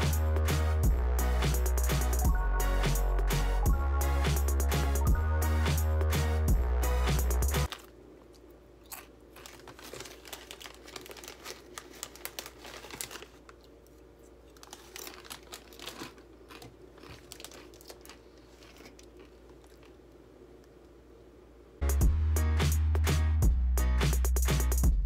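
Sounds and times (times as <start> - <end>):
low steady hum: 0.0 - 22.3
crinkling rustles: 7.7 - 20.0.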